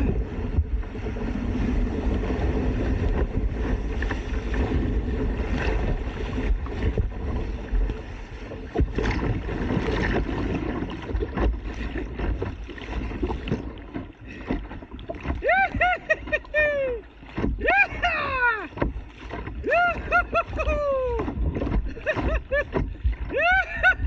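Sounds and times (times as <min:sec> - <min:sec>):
wind buffeting microphone: 0:00.0 - 0:12.5
choppy water splashing against hull: 0:00.0 - 0:24.0
paddle blades splashing: 0:00.0 - 0:24.0.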